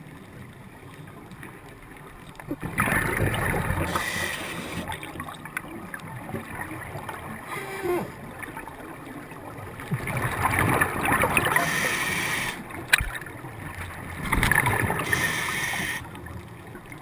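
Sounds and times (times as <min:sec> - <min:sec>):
exhaled bubbles gurgling: 0:02.5 - 0:17.0
diver breathing through regulator: 0:03.8 - 0:04.9, 0:07.5 - 0:08.2, 0:11.4 - 0:12.6, 0:15.0 - 0:16.1.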